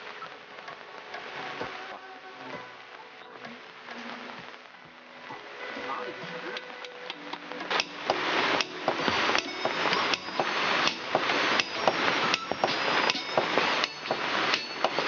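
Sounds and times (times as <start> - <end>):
hammer striking bamboo tubes: 7.6 - 15.0.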